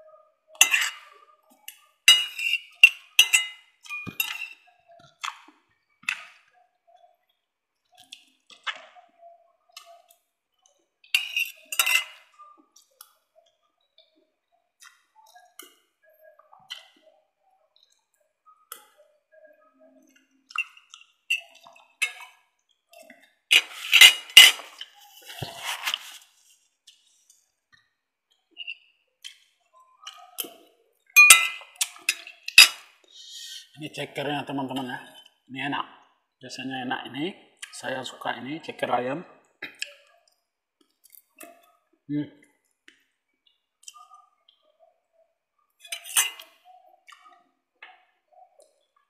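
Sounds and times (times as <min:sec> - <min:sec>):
cutlery clinking on ceramic plate: 0:00.6 - 0:01.1, 0:01.7 - 0:04.6, 0:11.2 - 0:12.3, 0:23.5 - 0:25.6, 0:31.2 - 0:32.9, 0:45.9 - 0:46.6.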